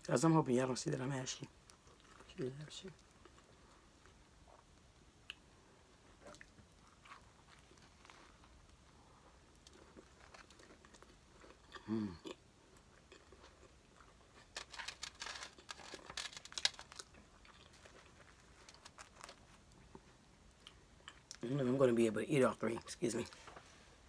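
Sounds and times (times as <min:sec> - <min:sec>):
person chewing and crunching: 0:01.5 - 0:21.5
person humming: 0:11.8 - 0:12.2.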